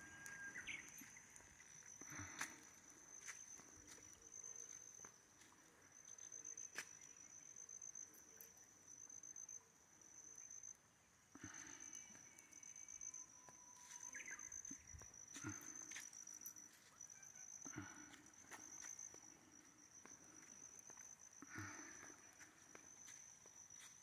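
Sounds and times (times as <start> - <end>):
high-pitched insect trill: 0.0 - 10.8, 11.5 - 24.0.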